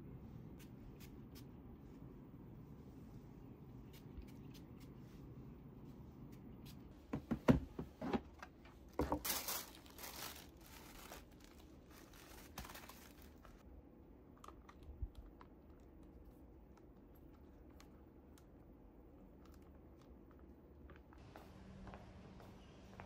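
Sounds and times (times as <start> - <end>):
tissue paper rustling: 9.0 - 13.6.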